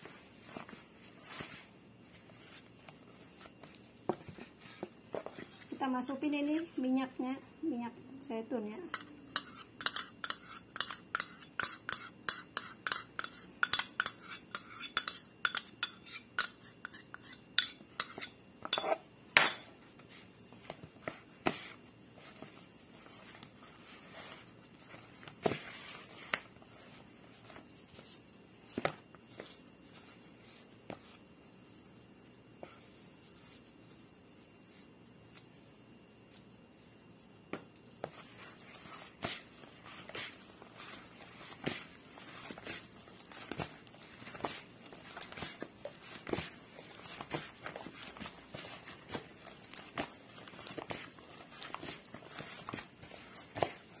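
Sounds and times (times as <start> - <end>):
spoon clinking on ceramic bowl: 8.9 - 19.6.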